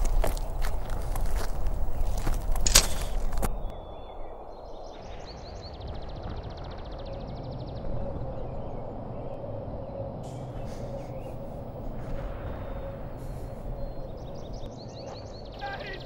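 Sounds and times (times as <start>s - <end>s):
footsteps crunching on forest ground: 0.0s - 3.8s
bird singing: 0.0s - 16.0s.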